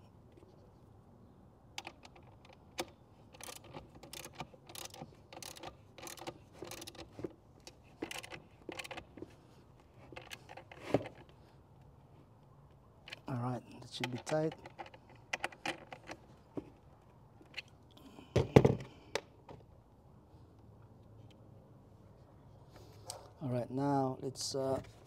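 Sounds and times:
ratchet wrench clicking: 3.4 - 7.1, 8.0 - 9.0.

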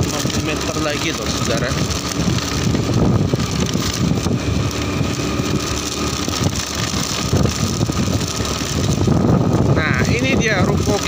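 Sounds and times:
motorcycle engine running: 0.0 - 11.0
wind noise on microphone: 0.0 - 11.0.

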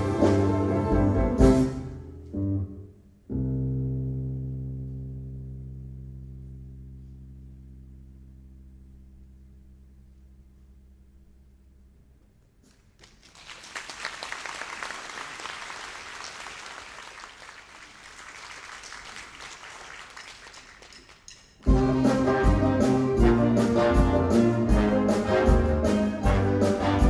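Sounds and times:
big band playing: 0.0 - 2.8, 21.3 - 27.0
audience clapping: 12.7 - 21.7.

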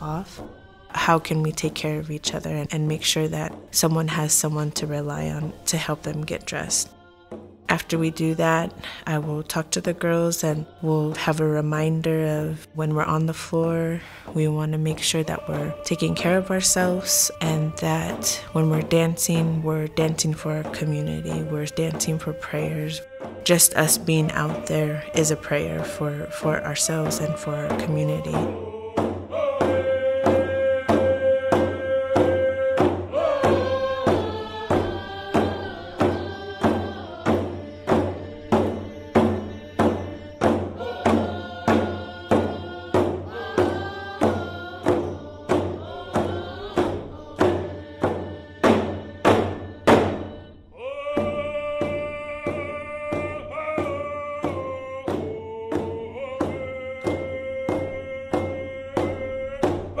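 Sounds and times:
person singing: 0.0 - 60.0
steady drum beat: 12.9 - 60.0.

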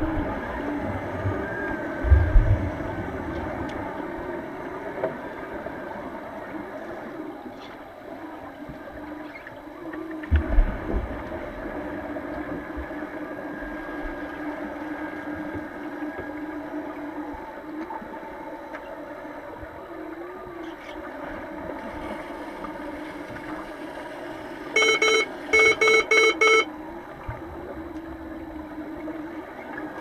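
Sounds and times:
underwater hiss and hum: 0.0 - 30.0
wavering whale-like tones: 0.0 - 30.0
low underwater thumps and rumble: 1.0 - 3.8, 10.2 - 12.9.

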